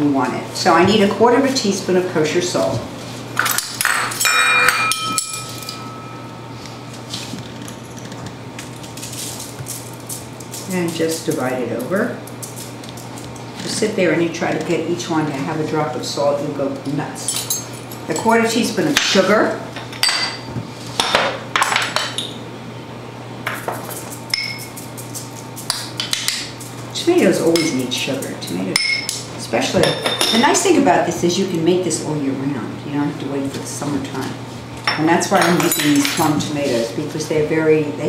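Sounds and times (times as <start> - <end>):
metal spoon ringing: 3.8 - 6.5.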